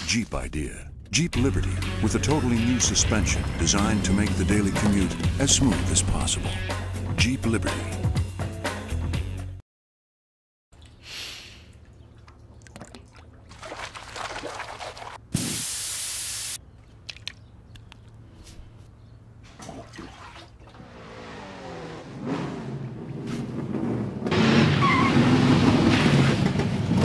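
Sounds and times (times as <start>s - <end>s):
loud hiss: 15.4s - 16.6s.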